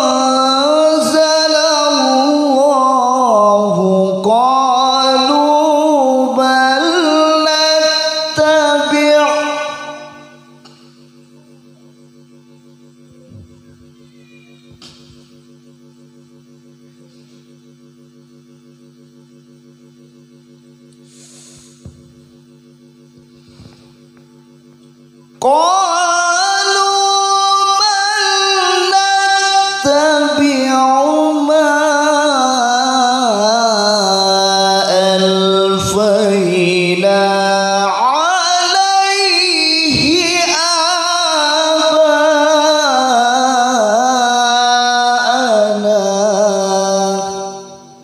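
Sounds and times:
man reciting melodically: 0.0s - 10.4s, 25.4s - 48.0s
electrical hum: 0.0s - 48.0s.

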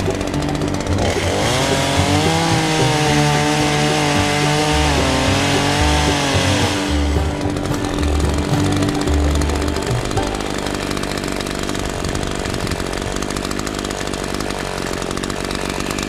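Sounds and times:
chainsaw cutting tree branch: 0.0s - 16.0s.

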